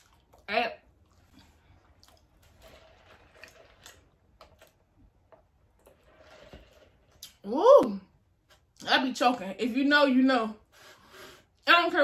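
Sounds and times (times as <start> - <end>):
chewing with wet mouth clicks: 0.0 - 2.5.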